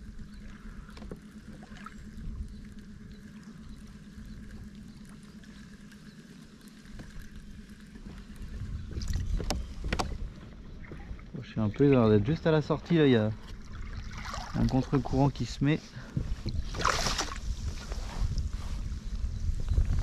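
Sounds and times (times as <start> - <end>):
low wind rumble: 0.0 - 20.0
water lapping against kayak hull: 0.0 - 20.0
small ticks: 0.2 - 10.2.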